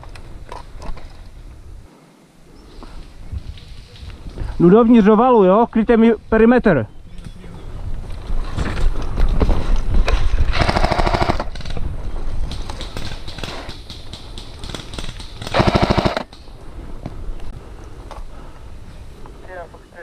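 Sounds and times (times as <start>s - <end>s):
airsoft gun full-auto bursts: 10.5s - 11.5s, 14.6s - 16.3s.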